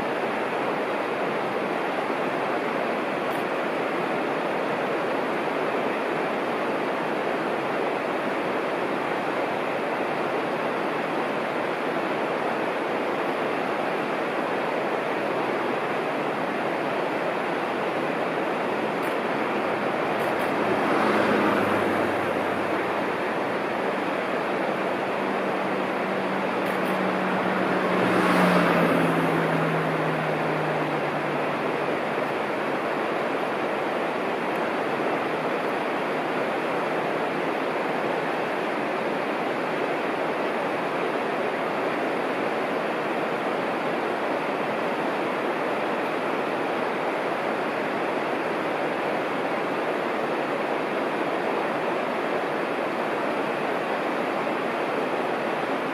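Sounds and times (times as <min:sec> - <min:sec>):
low engine hum: 0:14.7 - 0:39.4.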